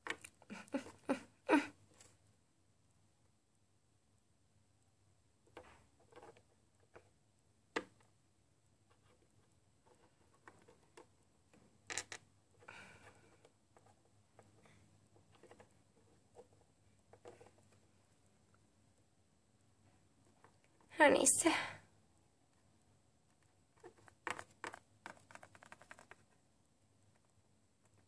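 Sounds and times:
plastic toy pieces tapping: 11.9 - 12.2.

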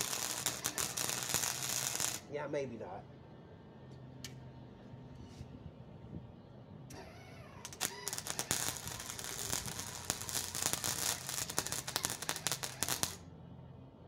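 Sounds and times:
welding arc crackling: 0.0 - 2.4, 7.6 - 13.2.

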